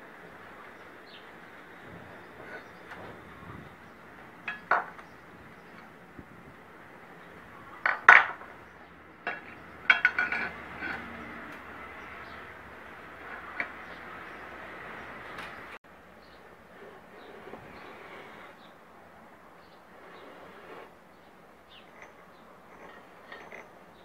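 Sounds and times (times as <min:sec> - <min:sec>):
steel parts clinking and knocking: 0:04.4 - 0:05.9, 0:07.8 - 0:08.6, 0:09.2 - 0:11.8, 0:21.8 - 0:24.0.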